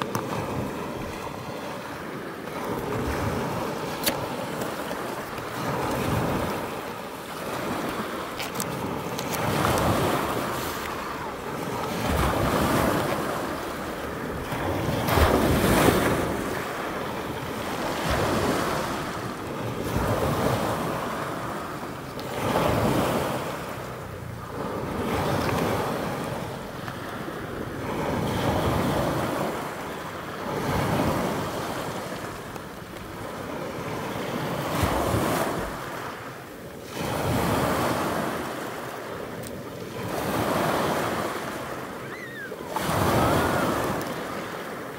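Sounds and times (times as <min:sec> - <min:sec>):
sea waves breaking on shore: 0:00.0 - 0:44.9
wind on microphone: 0:02.5 - 0:21.6.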